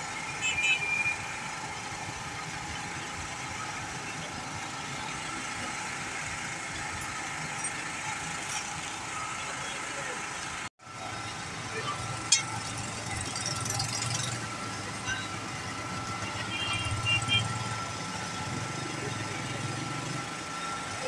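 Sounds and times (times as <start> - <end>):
vehicle engines idling: 0.0 - 21.0.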